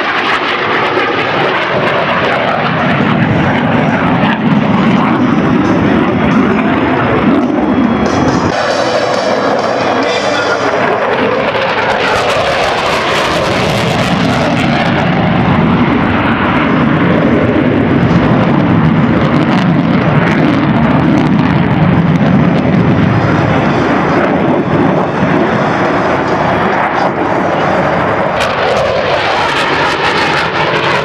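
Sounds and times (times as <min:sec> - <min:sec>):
jet flying by: 0:00.0 - 0:31.0.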